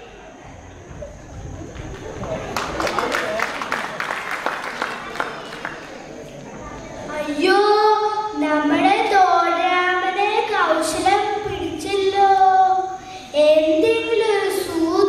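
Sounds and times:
child singing into microphone: 7.2s - 15.0s.

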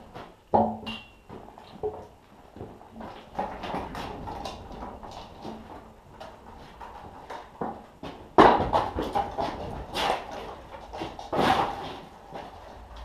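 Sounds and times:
knocks and rattles: 0.0s - 13.0s
pallet jack on concrete floor: 8.4s - 12.2s.

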